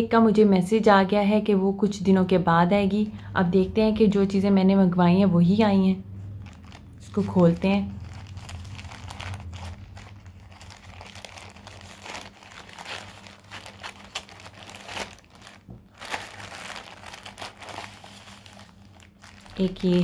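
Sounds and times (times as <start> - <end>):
plastic bag crinkling: 6.4 - 20.0.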